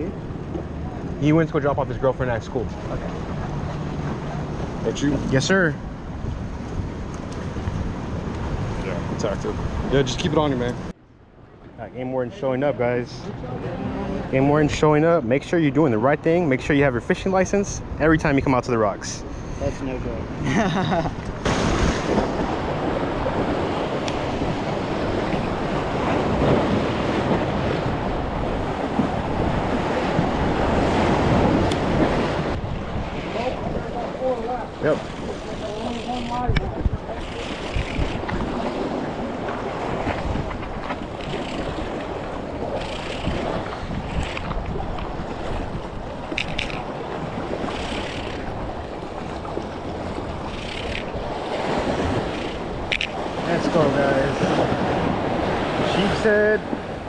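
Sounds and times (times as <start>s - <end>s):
wind buffeting microphone: 0.0s - 11.0s, 21.0s - 57.0s
waves splashing against rocks: 21.2s - 57.0s.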